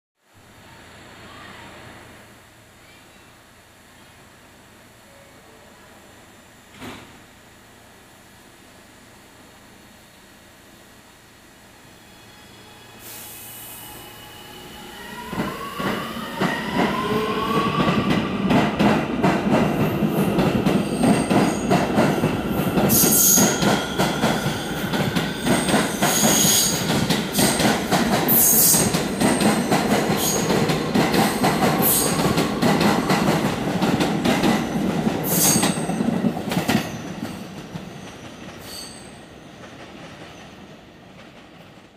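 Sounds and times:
subway train motors whining: 0:00.5 - 0:41.9
high wheel squeals: 0:36.7 - 0:39.3.

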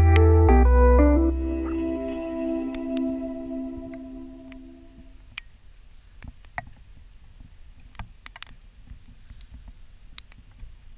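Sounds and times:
soft music: 0:00.0 - 0:05.2.

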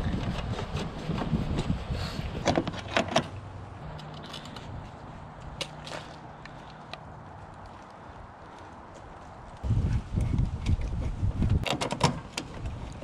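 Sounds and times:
hand tools clicking and knocking: 0:10.6 - 0:13.0.

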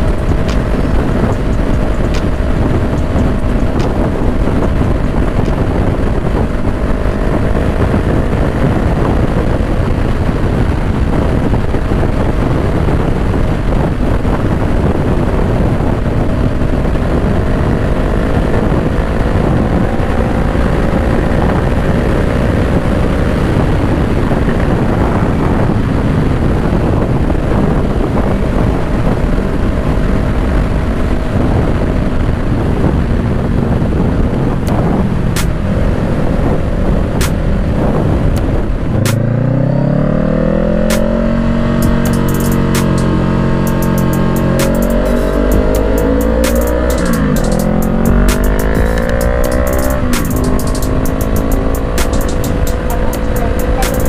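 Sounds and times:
motorcycle engine cruising: 0:00.0 - 0:54.0
wind noise on microphone: 0:00.0 - 0:54.0.

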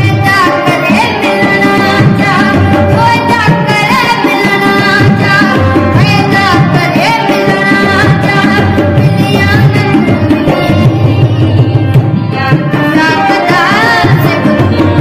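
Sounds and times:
boy singing: 0:00.0 - 0:15.0
hand drum beats: 0:00.0 - 0:15.0
harmonium chords: 0:00.0 - 0:15.0.

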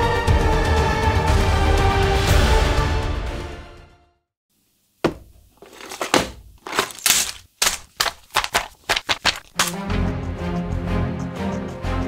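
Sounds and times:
paper and plastic bags rustling: 0:05.3 - 0:09.8.

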